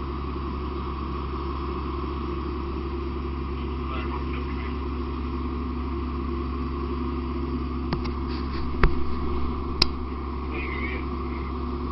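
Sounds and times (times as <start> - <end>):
fire engine droning: 0.0 - 11.9.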